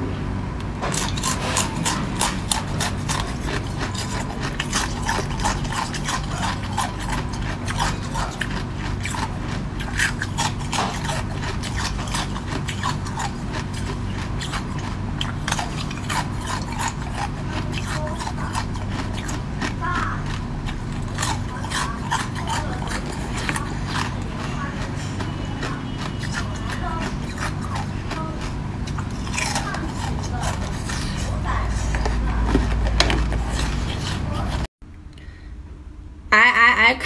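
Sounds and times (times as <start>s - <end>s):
low steady hum: 0.0s - 37.0s
chewing hard ice: 0.8s - 34.7s.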